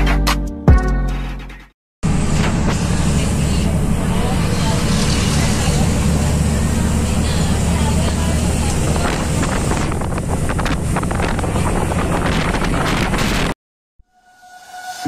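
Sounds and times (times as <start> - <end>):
road noise inside moving vehicle: 2.0 - 13.6
wind buffeting microphone: 7.6 - 13.6.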